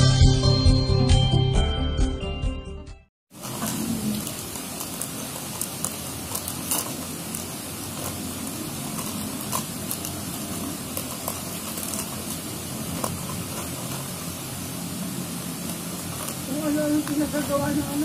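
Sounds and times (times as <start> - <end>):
paper plates and plastic handled: 3.4 - 14.7, 15.5 - 18.0.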